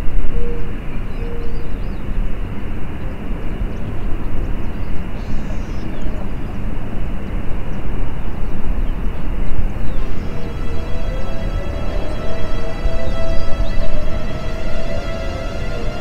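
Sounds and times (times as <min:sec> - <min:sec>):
low outdoor rumble and rushing: 0:09.8 - 0:16.0.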